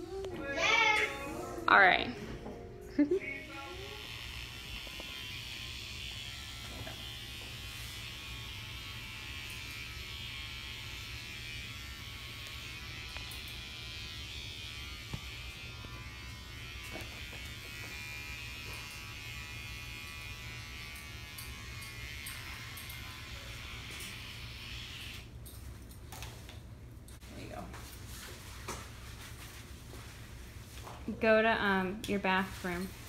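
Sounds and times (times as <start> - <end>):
electric hair clippers buzzing: 3.2 - 25.4.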